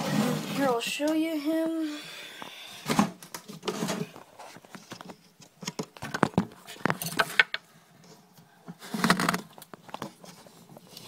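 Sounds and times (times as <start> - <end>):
clicks and taps in glass tank: 5.6 - 7.6.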